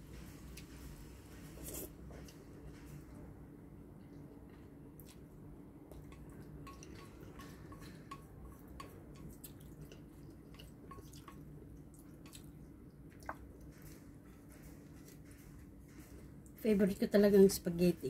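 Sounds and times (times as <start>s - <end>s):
person chewing wetly: 4.0s - 13.9s.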